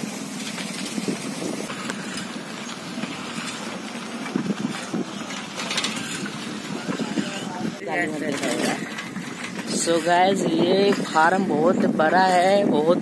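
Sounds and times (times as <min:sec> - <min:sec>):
road and wind noise: 0:00.0 - 0:13.0.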